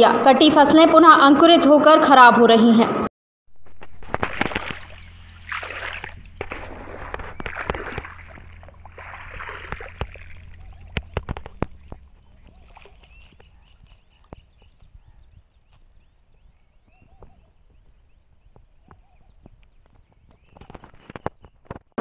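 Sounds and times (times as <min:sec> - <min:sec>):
low hum: 0:03.5 - 0:18.6
water sloshing and splashing: 0:03.6 - 0:14.9.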